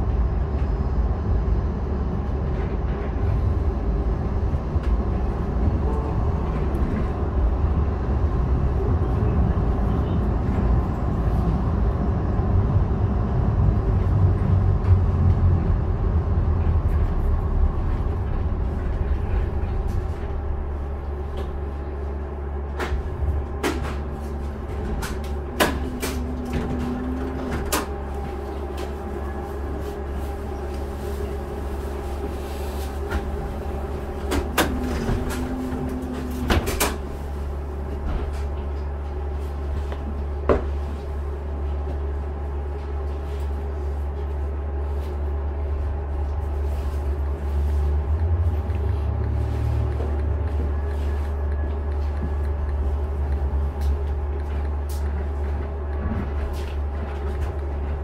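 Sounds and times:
light rail car rumble: 0.0s - 58.0s.

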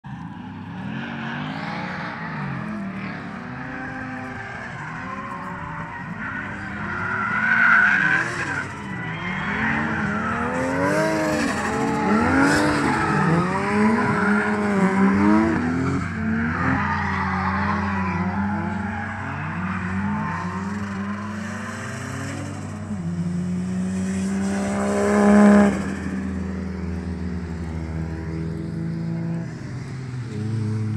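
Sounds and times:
car engines revving: 0.0s - 30.9s
tire squeal: 0.1s - 23.2s, 23.8s - 27.0s.

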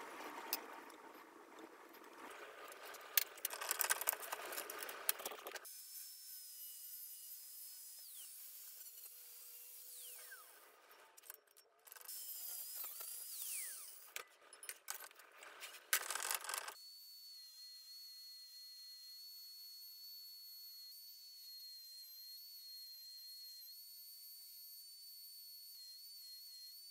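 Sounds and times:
angle grinder cutting steel: 2.8s - 14.3s.

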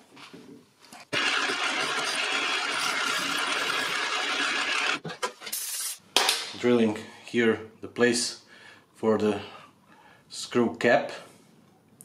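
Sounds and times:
drill drilling into metal: 1.1s - 5.0s.

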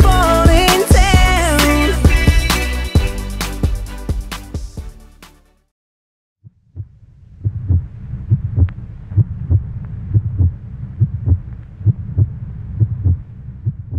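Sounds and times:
heartbeat thumps: 0.0s - 1.4s, 6.4s - 13.9s
low steady rumble: 6.5s - 13.9s.

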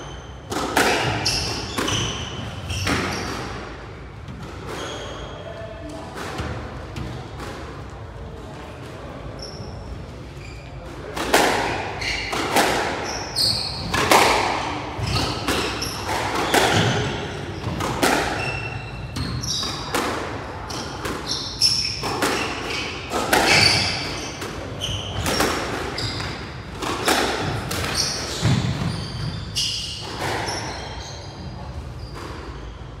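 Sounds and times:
shoes squeaking on court: 0.0s - 3.6s, 4.6s - 5.5s, 9.4s - 10.8s, 11.7s - 20.0s, 20.6s - 33.0s
racket striking ball: 0.5s - 2.1s, 13.8s - 20.3s, 20.9s - 28.9s
squash ball hitting walls: 0.5s - 5.2s, 11.0s - 30.7s.

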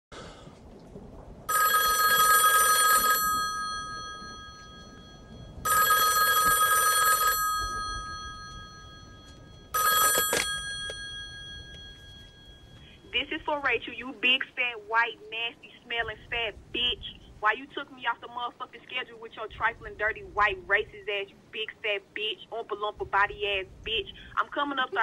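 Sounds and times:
telephone bell ringing: 1.5s - 13.1s.

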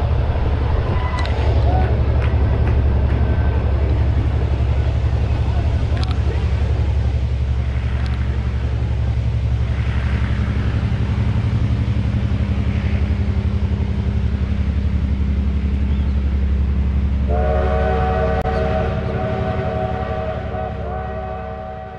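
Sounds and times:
locomotive engine rumbling: 0.0s - 21.9s
locomotive horn chord: 17.3s - 21.9s.

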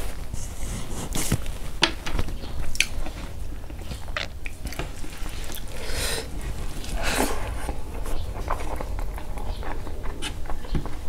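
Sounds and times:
person chewing food: 2.4s - 11.0s.

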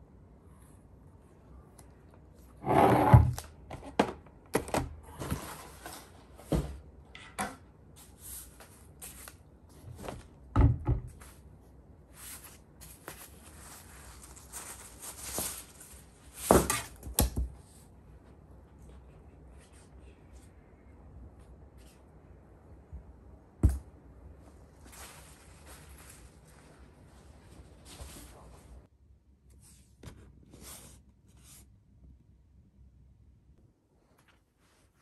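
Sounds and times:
packaging rustling: 12.8s - 16.2s.

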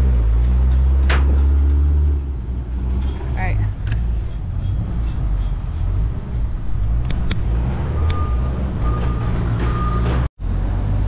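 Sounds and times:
low vehicle rumble: 0.0s - 11.0s
backup alarm beeping: 7.9s - 10.3s.

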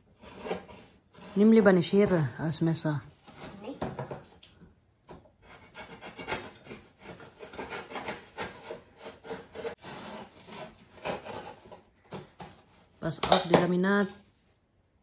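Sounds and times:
cardboard box being cut: 5.6s - 13.0s.

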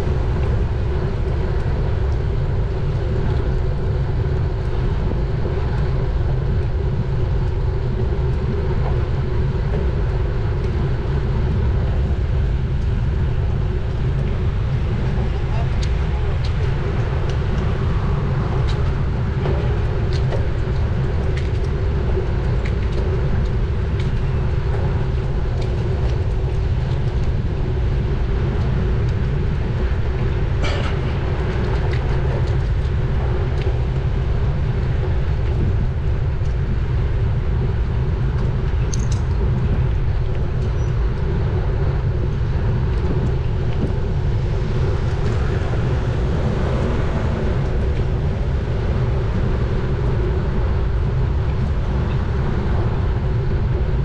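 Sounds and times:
bike tyres rolling on road: 0.0s - 54.0s
wind on microphone: 0.0s - 54.0s
small clicks and knocks: 38.9s - 39.4s.

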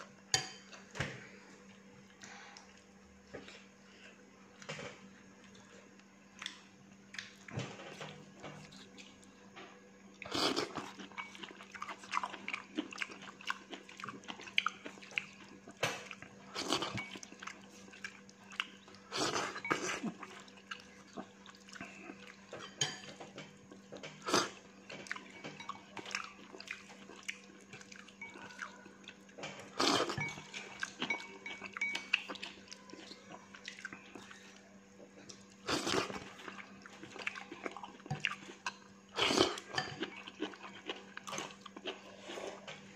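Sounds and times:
person chewing food: 10.2s - 42.9s.

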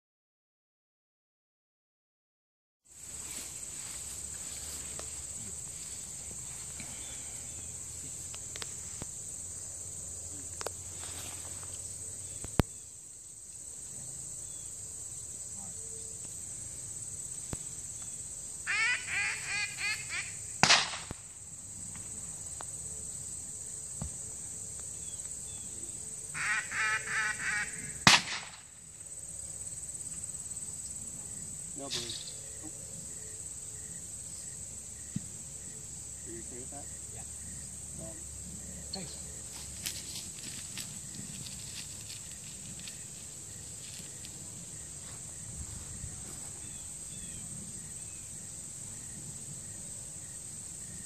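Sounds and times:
insects chirring: 2.9s - 51.0s
duck call quacks: 18.7s - 20.4s, 26.4s - 28.0s
gunshot: 20.6s - 21.2s, 28.0s - 28.7s.

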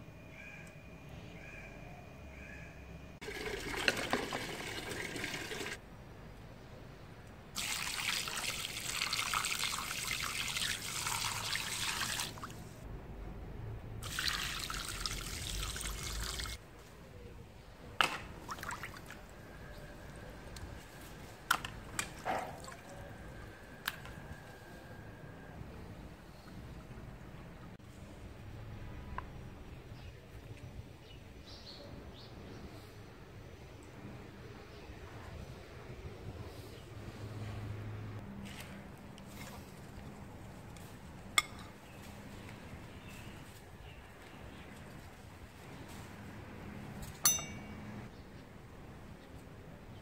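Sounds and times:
water splashing over chicken: 7.6s - 12.6s, 14.0s - 16.6s.

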